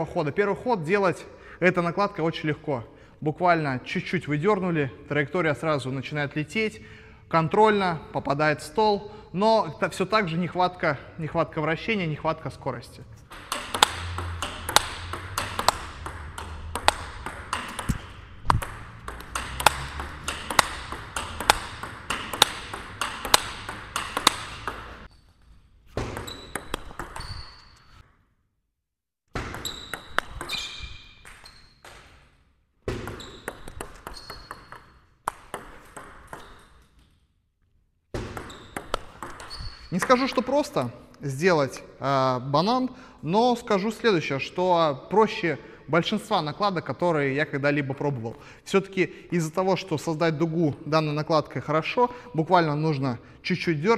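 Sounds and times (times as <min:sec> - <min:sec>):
table tennis ball hitting bats: 0:13.2 - 0:28.1, 0:29.3 - 0:37.2, 0:38.1 - 0:40.9
ball bouncing on table: 0:13.3 - 0:25.1, 0:25.9 - 0:27.8, 0:29.3 - 0:32.3, 0:32.9 - 0:36.8, 0:38.1 - 0:40.5.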